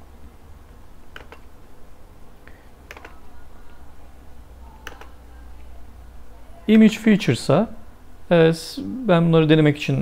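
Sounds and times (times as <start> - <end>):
steady low hum: 0.0 - 10.0
computer mouse and keyboard clicks: 1.1 - 1.5, 2.8 - 3.2, 4.8 - 5.2.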